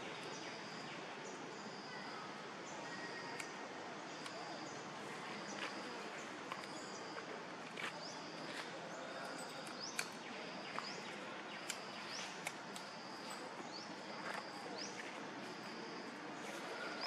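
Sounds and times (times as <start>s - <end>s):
sharp clicks: 9.5s - 14.6s.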